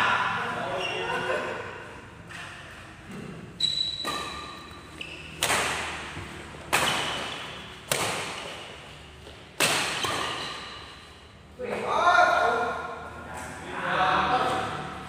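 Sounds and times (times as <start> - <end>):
badminton racket hitting shuttlecock: 3.6 - 11.3.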